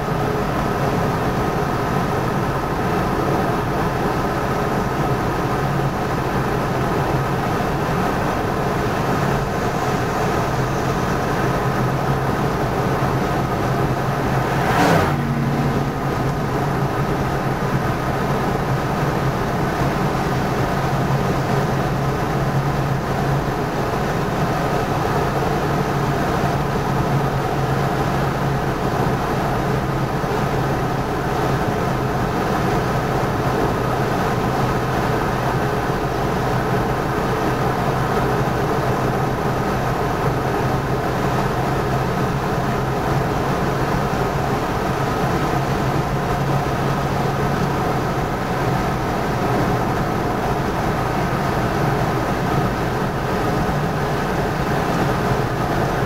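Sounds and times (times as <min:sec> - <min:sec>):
car engine and tyre drone: 0:00.0 - 0:56.0
whoosh falling in pitch: 0:14.0 - 0:18.1.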